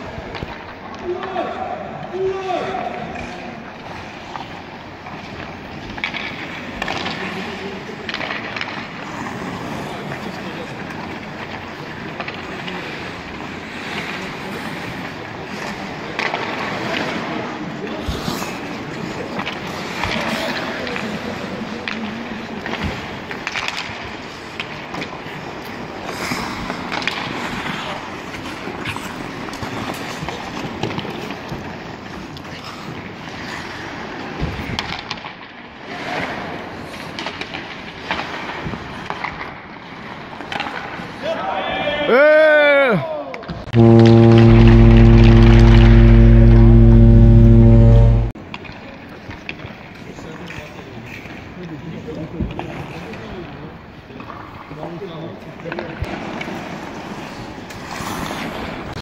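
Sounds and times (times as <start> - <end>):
hockey sticks and puck clacking: 8.1 - 8.9, 40.4 - 41.0.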